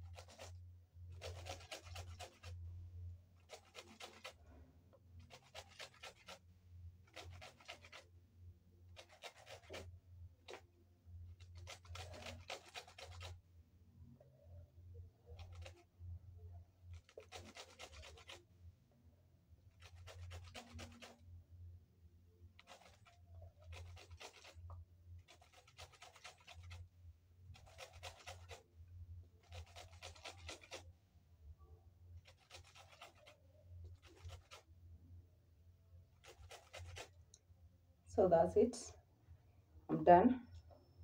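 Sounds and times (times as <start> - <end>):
grater scraping lemon peel: 0.0 - 0.6, 1.2 - 2.6, 3.4 - 4.4, 5.2 - 6.4, 7.1 - 8.0, 9.0 - 9.9, 11.4 - 13.3, 16.9 - 18.4, 19.8 - 21.2, 22.6 - 26.9, 27.5 - 28.6, 29.4 - 30.8, 32.2 - 34.7, 36.2 - 37.1.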